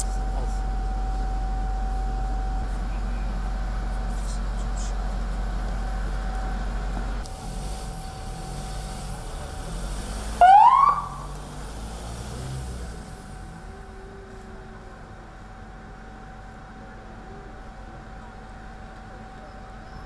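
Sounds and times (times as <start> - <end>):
steady low hum: 0.0 - 9.9
ambulance siren whoop: 10.4 - 11.3.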